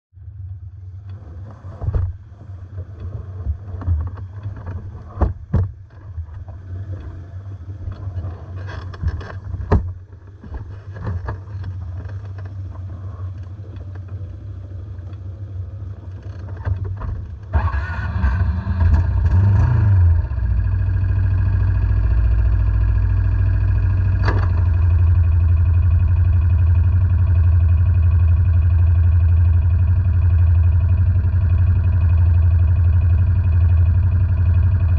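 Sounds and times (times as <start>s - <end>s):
nearer engine droning: 0.2s - 34.9s
quad engines idling: 17.3s - 34.9s
sharp knocks and clatter: 24.0s - 25.2s.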